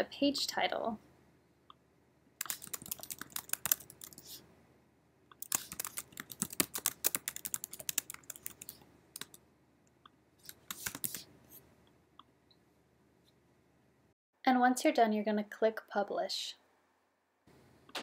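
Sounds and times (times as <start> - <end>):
typing on computer keyboard: 2.4 - 4.3, 5.4 - 9.4, 10.5 - 11.2.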